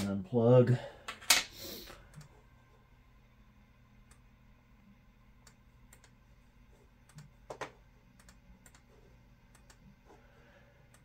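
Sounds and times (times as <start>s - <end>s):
computer mouse clicks: 5.4s - 6.2s, 7.0s - 8.9s, 9.5s - 9.9s.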